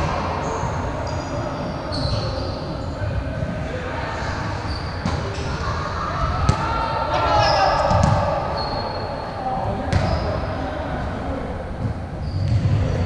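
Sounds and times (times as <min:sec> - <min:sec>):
sneakers squeaking on hardwood: 0:00.4 - 0:02.8.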